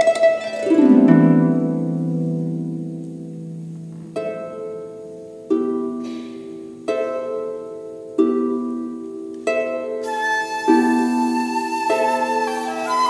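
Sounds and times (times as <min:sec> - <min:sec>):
harp plucking single notes: 0:00.0 - 0:13.0.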